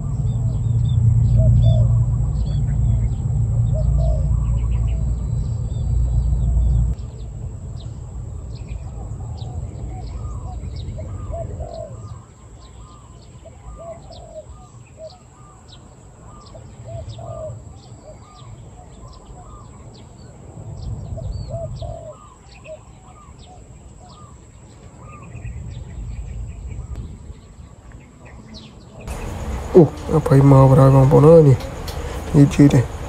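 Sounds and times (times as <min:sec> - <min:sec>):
doves cooing: 0:00.0 - 0:06.8, 0:08.6 - 0:27.0, 0:29.0 - 0:33.0
low rumble: 0:00.0 - 0:12.2, 0:29.1 - 0:33.0
small birds chirping: 0:00.0 - 0:33.0.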